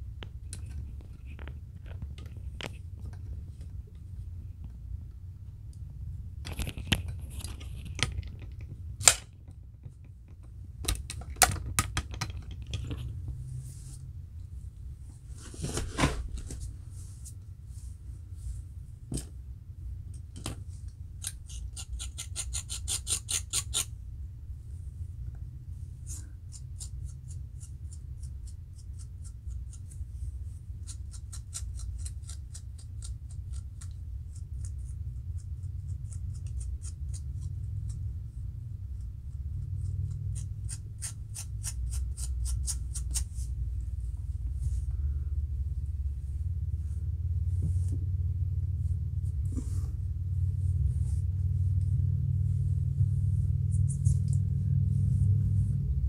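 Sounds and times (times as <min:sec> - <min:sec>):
steady low hum: 0:00.0 - 0:56.0
metal comb scraping scalp: 0:21.2 - 0:23.9, 0:40.0 - 0:43.5, 0:53.6 - 0:54.5.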